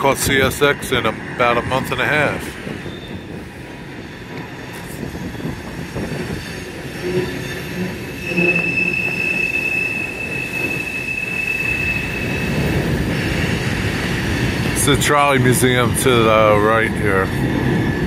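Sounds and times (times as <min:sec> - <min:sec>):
train cars rumbling over bridge: 0:00.0 - 0:18.0
high-pitched wheel squeal: 0:02.8 - 0:03.4, 0:04.0 - 0:12.9.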